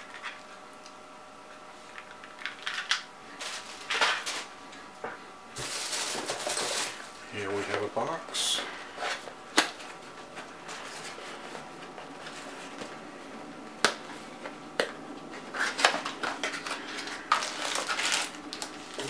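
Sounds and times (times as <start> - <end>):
plastic bag rustling: 2.6 - 4.6, 5.6 - 7.7, 15.4 - 19.0.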